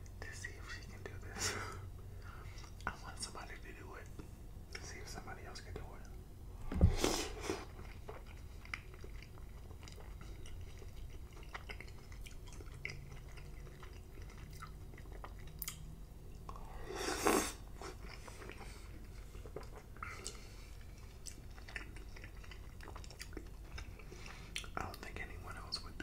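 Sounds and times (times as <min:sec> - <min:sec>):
wet chewing mouth sounds: 0:07.1 - 0:26.0.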